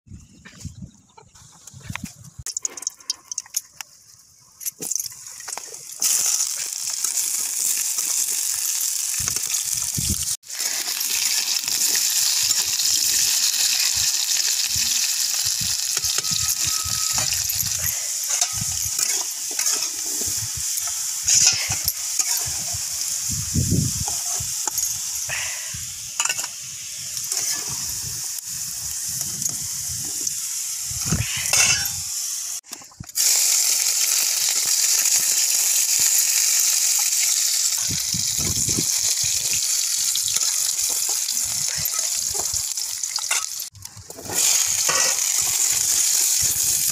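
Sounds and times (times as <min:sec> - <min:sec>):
potatoes sizzling in hot oil: 0:04.9 - 0:46.9
metal spatula scraping: 0:16.0 - 0:22.8, 0:31.1 - 0:32.0, 0:44.3 - 0:45.6.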